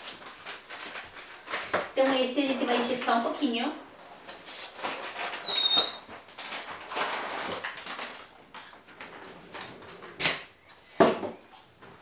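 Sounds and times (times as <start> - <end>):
balloon squeak: 5.4 - 6.1.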